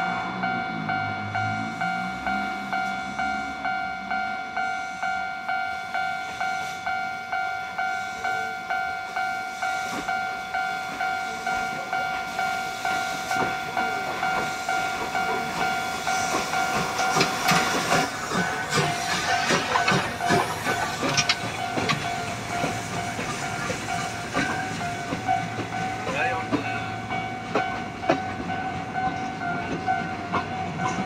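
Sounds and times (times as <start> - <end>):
level-crossing warning bell ringing: 0.0 - 31.0
steam locomotive hiss: 7.8 - 27.1
train wheel clatter: 9.1 - 31.0.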